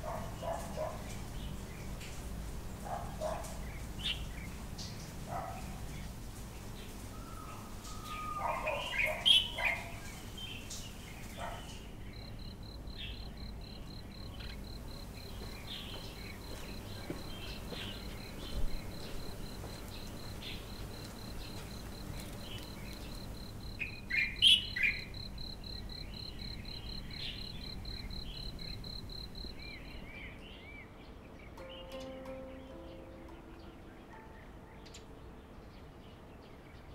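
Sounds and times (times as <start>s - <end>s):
birds chirping: 0.0s - 36.9s
pulsing insect trill: 12.2s - 30.0s.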